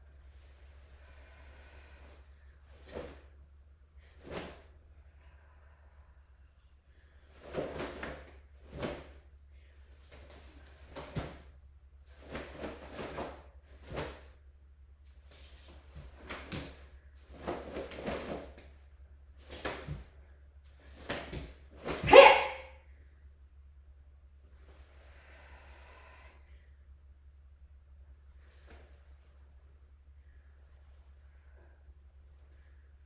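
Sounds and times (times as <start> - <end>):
person shouting: 22.0 - 22.7.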